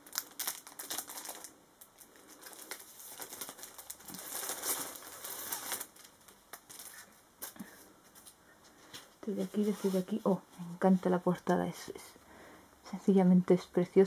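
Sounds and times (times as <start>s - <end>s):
packaging rustling and crinkling: 0.0s - 8.4s.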